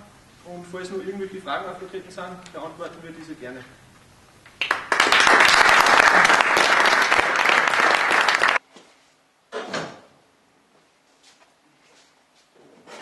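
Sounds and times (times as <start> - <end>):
audience applauding: 4.6 - 8.6.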